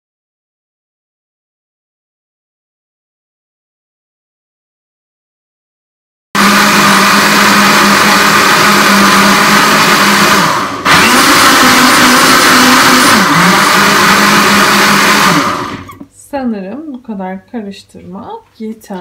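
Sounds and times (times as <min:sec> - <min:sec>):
blender motor running: 0:06.4 - 0:16.0.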